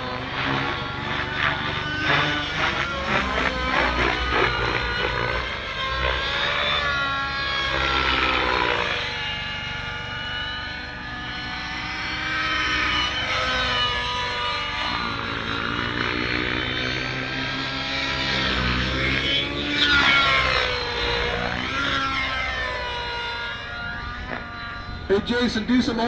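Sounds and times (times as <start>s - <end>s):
rc helicopter engine whine: 0.0s - 26.0s.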